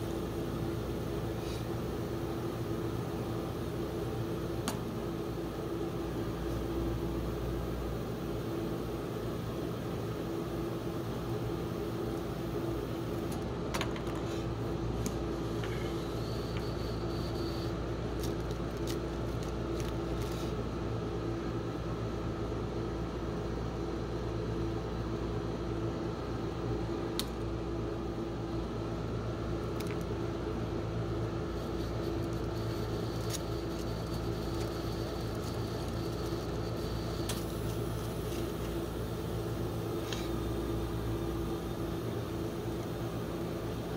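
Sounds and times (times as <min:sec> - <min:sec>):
refrigeration unit humming: 0:00.0 - 0:43.9
foil wrappers crackling: 0:18.2 - 0:20.5.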